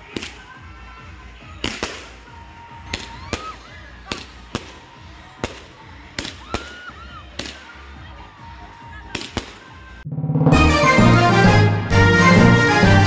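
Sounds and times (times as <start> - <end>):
low rumble: 10.0 - 10.9.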